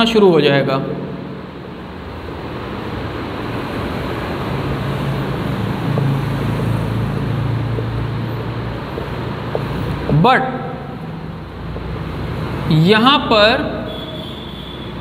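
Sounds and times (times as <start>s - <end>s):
marker ticking on whiteboard: 5.8s - 10.2s, 11.7s - 12.0s.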